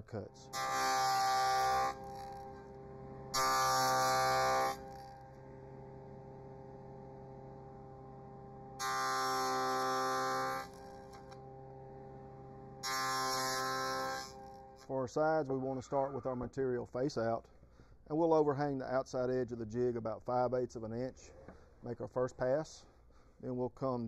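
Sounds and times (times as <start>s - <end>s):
table saw cutting wood: 0.0s - 16.4s
table saw humming: 0.0s - 16.4s.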